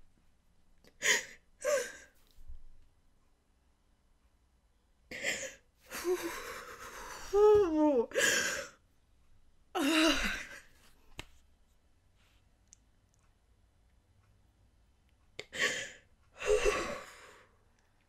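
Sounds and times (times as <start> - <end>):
woman crying: 5.2 - 8.8, 9.8 - 10.6.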